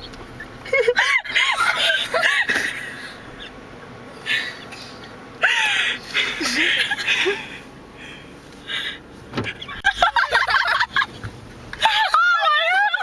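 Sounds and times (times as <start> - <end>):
people shrieking with laughter: 0.6 - 3.0, 5.4 - 7.5, 11.8 - 13.0.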